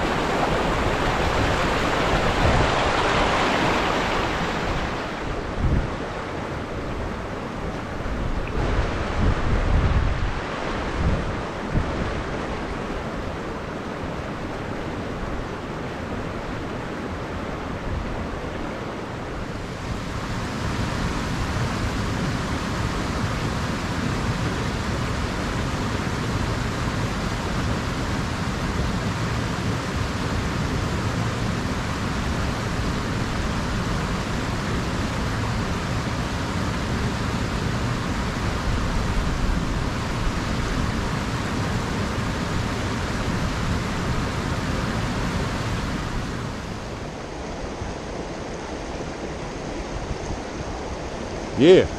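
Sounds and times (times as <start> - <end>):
wind buffeting microphone: 0.0 - 12.6
river flowing: 0.0 - 51.9.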